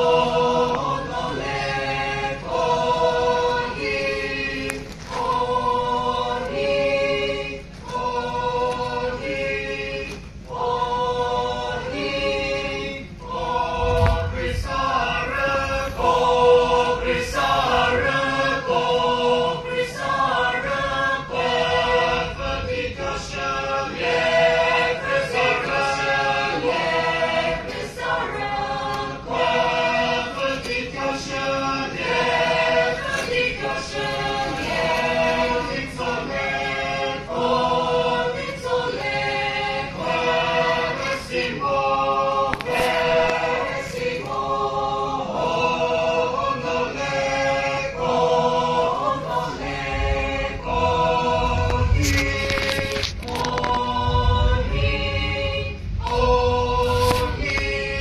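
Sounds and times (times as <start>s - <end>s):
mixed choir singing folk song: 0.0s - 58.0s.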